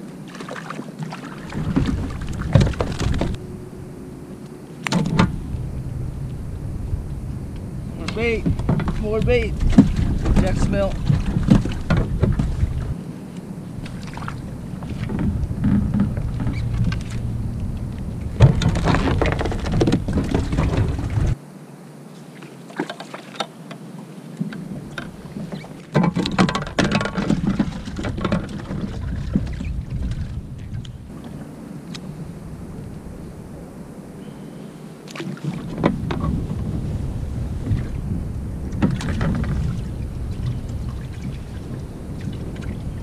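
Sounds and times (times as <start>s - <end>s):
wind rumbling on microphone: 0.0s - 22.7s, 23.4s - 43.0s
water against kayak: 0.0s - 43.0s
fishing gear knocking and rattling: 1.6s - 3.4s, 8.0s - 13.0s, 18.3s - 21.4s, 25.9s - 30.3s.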